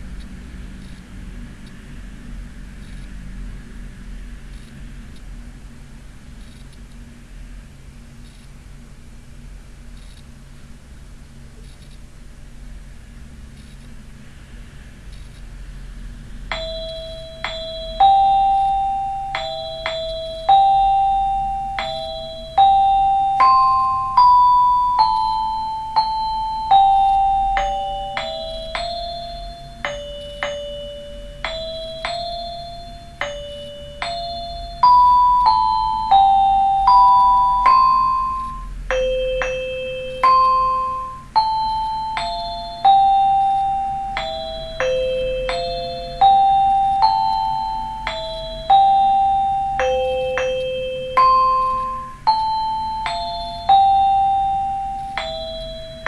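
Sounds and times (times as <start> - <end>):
xylophone melody: 16.5 - 56.0.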